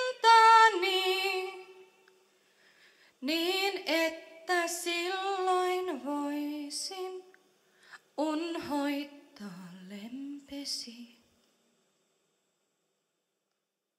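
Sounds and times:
woman singing folk song: 0.0 - 2.0, 3.2 - 11.3.

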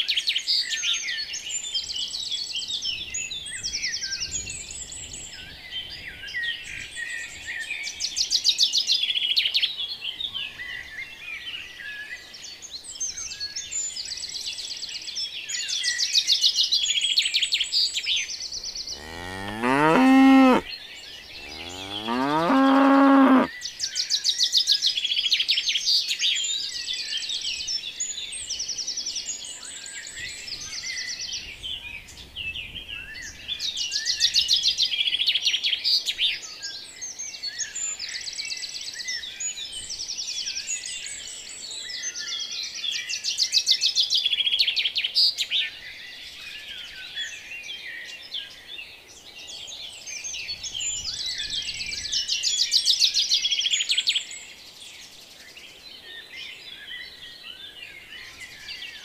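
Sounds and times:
birds chirping: 18.7 - 23.5
cow mooing: 19.0 - 20.7, 21.4 - 23.5.

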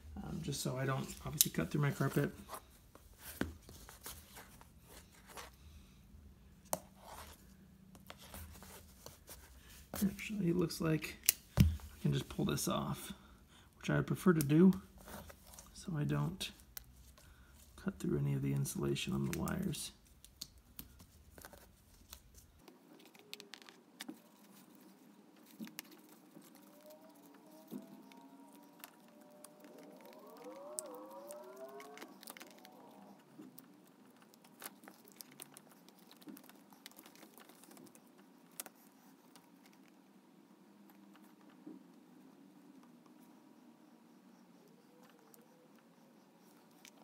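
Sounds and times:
faint clicks and rustles: 14.3 - 47.0.

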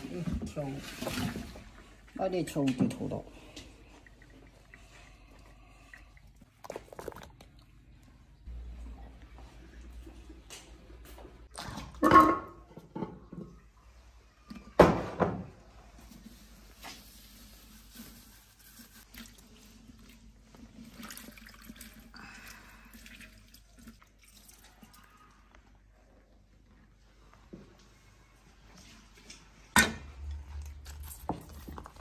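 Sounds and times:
brine splashing and dripping: 3.4 - 8.0, 20.8 - 25.1.

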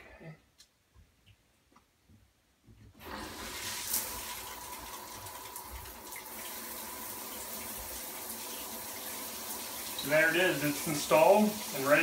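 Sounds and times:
shower water spraying: 3.0 - 12.0.

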